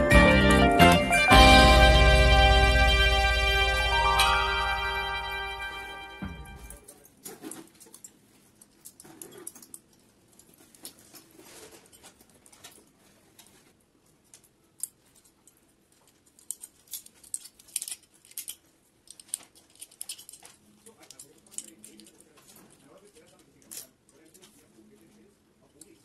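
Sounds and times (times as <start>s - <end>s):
music ending: 0.0s - 6.8s
metal strips crinkling and clicking: 7.2s - 26.0s.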